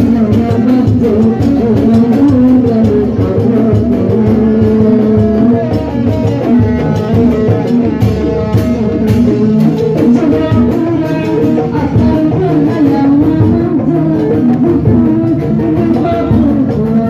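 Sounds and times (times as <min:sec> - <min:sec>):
folk band music over loudspeakers: 0:00.0 - 0:17.0
hand drums beating: 0:00.0 - 0:17.0
plucked string and guitar melody: 0:00.0 - 0:17.0.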